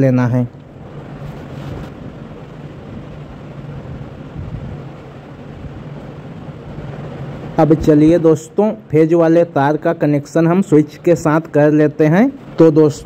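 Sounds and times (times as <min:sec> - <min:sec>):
low even hum: 0:00.0 - 0:13.0.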